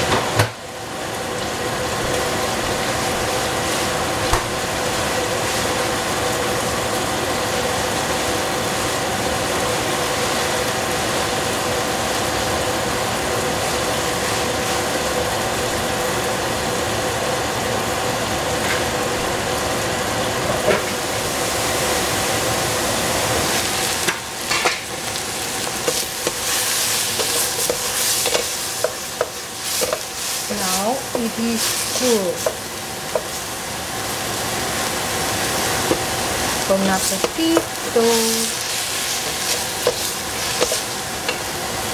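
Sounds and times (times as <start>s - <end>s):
cabbage sizzling in a pot: 0.0s - 41.9s
wooden spatula stirring greens: 25.4s - 33.6s, 35.5s - 41.5s.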